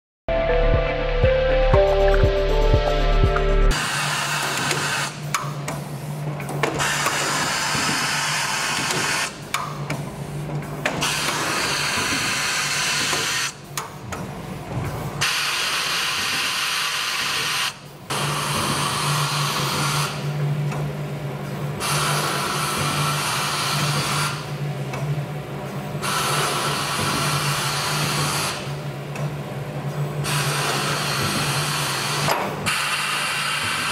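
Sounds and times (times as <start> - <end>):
machine hissing over low hum: 3.7 - 9.5, 10.1 - 13.6, 14.5 - 20.4, 21.4 - 24.8, 25.9 - 29.0, 30.0 - 33.9.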